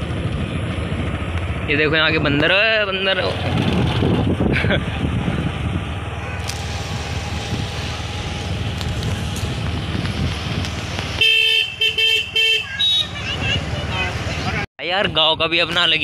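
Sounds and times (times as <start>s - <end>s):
motorbike engine rumble: 0.0s - 14.6s
wind noise: 3.1s - 11.7s
vehicle horn honks: 6.2s - 6.7s, 11.2s - 13.3s.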